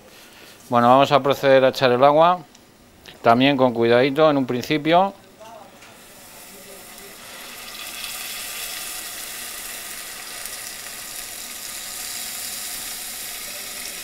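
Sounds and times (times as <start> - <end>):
water sizzling in hot oil: 6.0 - 14.0.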